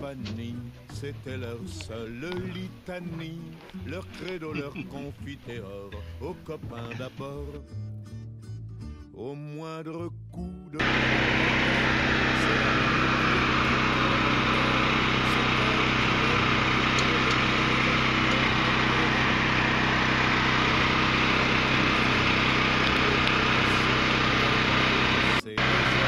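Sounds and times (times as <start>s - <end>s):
small engine humming steadily: 10.8s - 26.0s.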